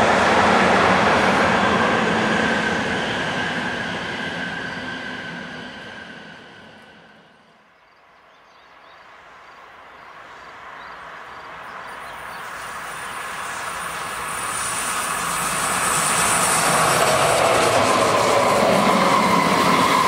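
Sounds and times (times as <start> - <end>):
train wheels rushing on rail: 0.0 - 7.7, 9.2 - 20.0.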